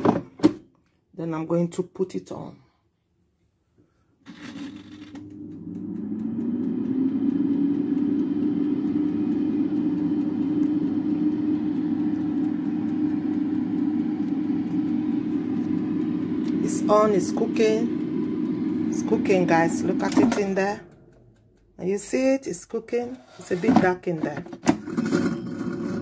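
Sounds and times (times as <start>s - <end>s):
fan motor humming: 4.4s - 26.0s
air fryer clicks: 5.3s - 20.8s.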